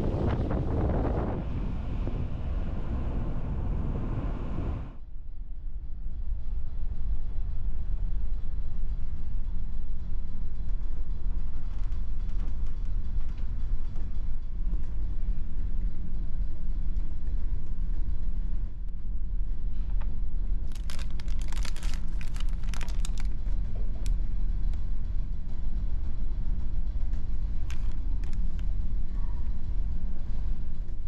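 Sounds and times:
ship engines droning: 0:00.0 - 0:05.0
plastic wrapper crinkling: 0:20.7 - 0:23.4, 0:27.7 - 0:28.4.

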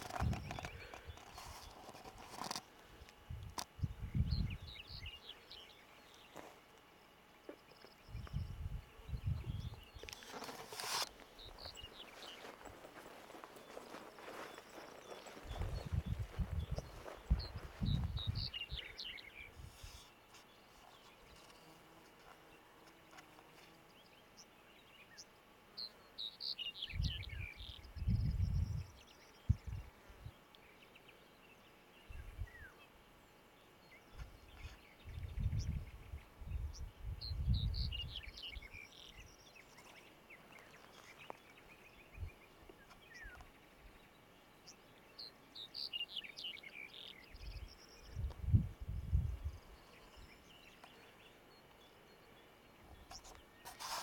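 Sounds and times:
songbird singing: 0:00.0 - 0:54.0
wind gusting on microphone: 0:03.2 - 0:04.7, 0:08.1 - 0:10.0, 0:15.4 - 0:18.8, 0:26.9 - 0:28.9, 0:35.1 - 0:38.2, 0:47.4 - 0:49.6.

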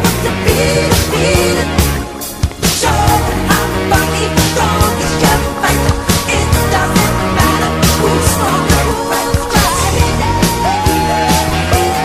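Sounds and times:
rock music: 0:00.0 - 0:12.0.

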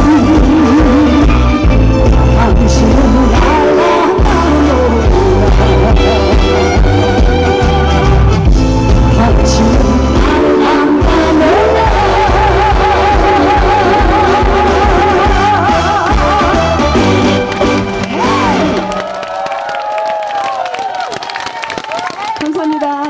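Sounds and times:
woman singing into microphone: 0:00.0 - 0:06.8, 0:09.1 - 0:16.7
amplified backing music: 0:00.0 - 0:19.0.

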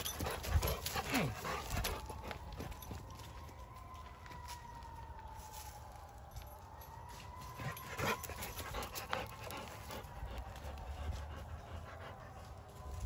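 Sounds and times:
dog panting: 0:00.0 - 0:02.1, 0:08.0 - 0:12.6.

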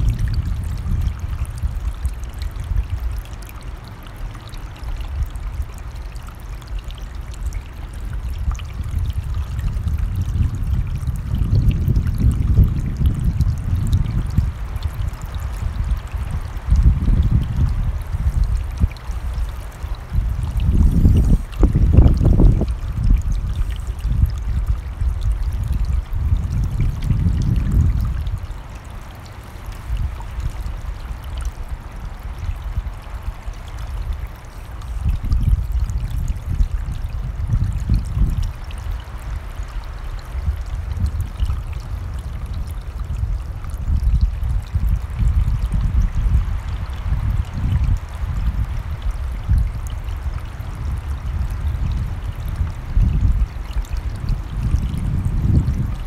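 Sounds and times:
wind rumbling on microphone: 0:00.0 - 0:56.0
stream rushing: 0:14.4 - 0:22.8, 0:27.4 - 0:37.2, 0:38.5 - 0:42.8.

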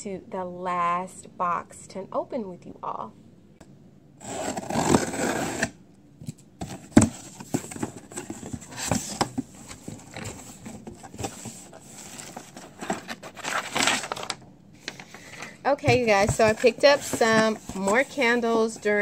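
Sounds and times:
scrapes and rustles: 0:06.6 - 0:14.3, 0:15.8 - 0:19.0.

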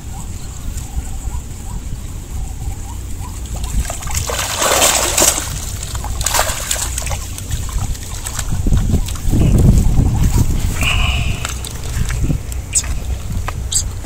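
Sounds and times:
water splashing: 0:03.2 - 0:14.0
water running off net: 0:03.6 - 0:09.4.

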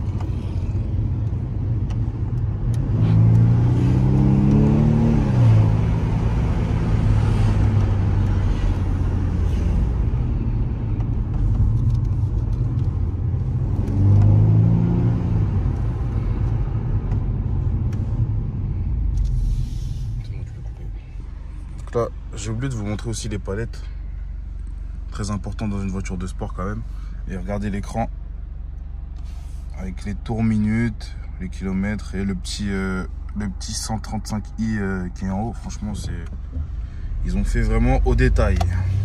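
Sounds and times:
turbocharged engine accelerating: 0:00.0 - 0:22.0
road drone: 0:00.0 - 0:39.0.

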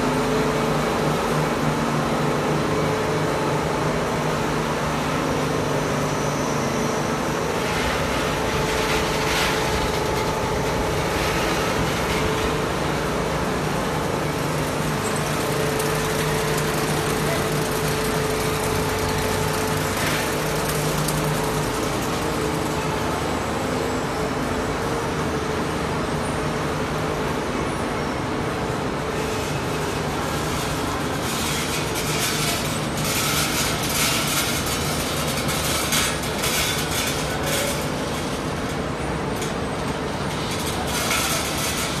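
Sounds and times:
hiss and rattle: 0:06.6 - 0:23.4, 0:29.2 - 0:42.0.

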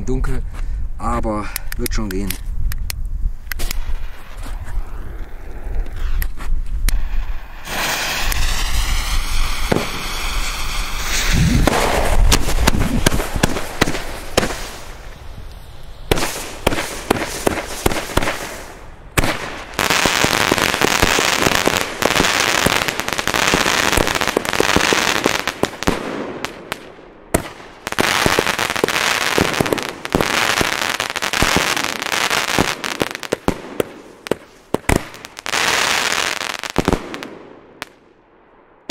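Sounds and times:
rising firework whistles: 0:03.6 - 0:26.0
rapid firework shots and bangs: 0:07.6 - 0:14.8, 0:16.1 - 0:18.6.

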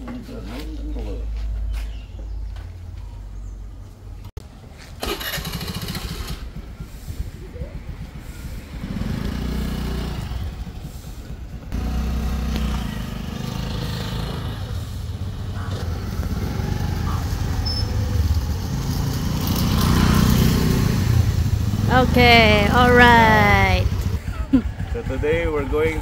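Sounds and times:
motor scooter engine running: 0:04.8 - 0:26.0.

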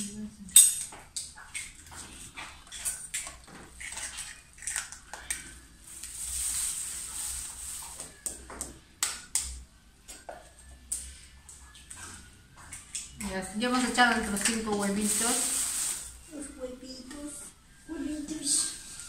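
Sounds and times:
eggs cracking against plastic bowl: 0:00.7 - 0:05.5
plastic bag crinkling: 0:14.2 - 0:16.2.

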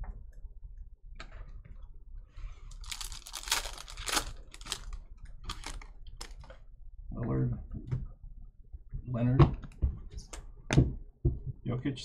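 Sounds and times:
foil wrapper tearing: 0:02.7 - 0:06.4
wrapper crackling: 0:02.7 - 0:06.5.

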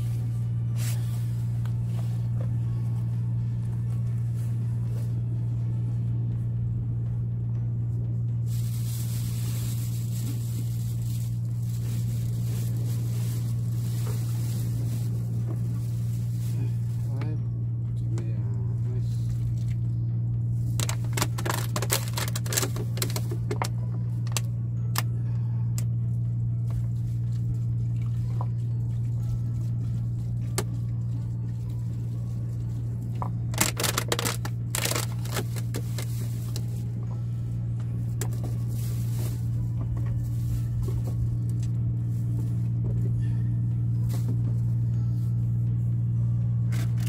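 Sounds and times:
steady low hum: 0:00.0 - 0:47.0
plastic bag crinkling: 0:08.4 - 0:17.0, 0:20.7 - 0:24.5, 0:33.5 - 0:36.9.

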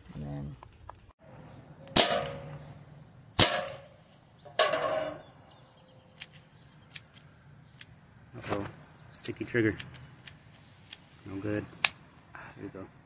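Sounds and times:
air pistol shots: 0:01.9 - 0:02.6, 0:03.4 - 0:04.0.

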